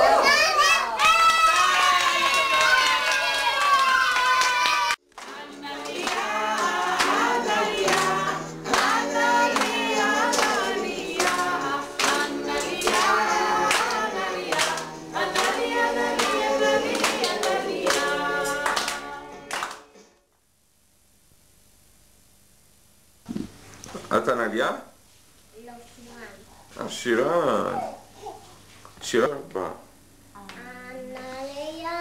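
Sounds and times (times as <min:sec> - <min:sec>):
hands clapping: 0:01.0 - 0:20.1
children singing: 0:05.2 - 0:19.4.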